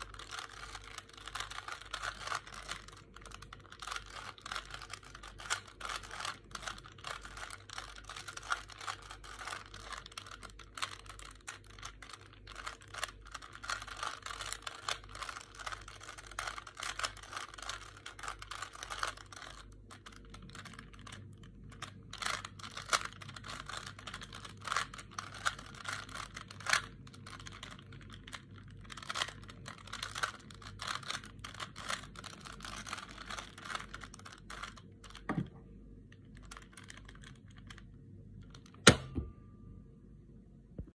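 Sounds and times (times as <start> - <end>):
puzzle cube clicking: 0.0 - 35.4, 36.1 - 39.0.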